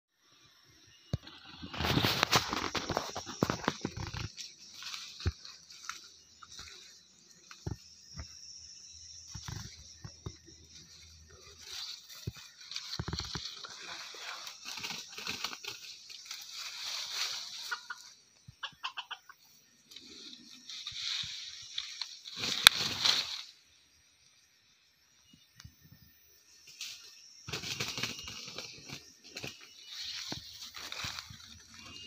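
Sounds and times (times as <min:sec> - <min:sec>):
rooster clucking: 0:17.5 - 0:19.4.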